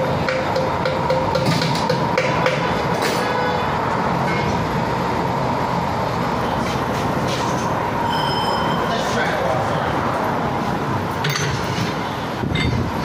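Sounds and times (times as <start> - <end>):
tire clicking and knocking on rim: 0.0 - 3.2
mechanical shop noise: 0.0 - 8.9, 11.0 - 13.0.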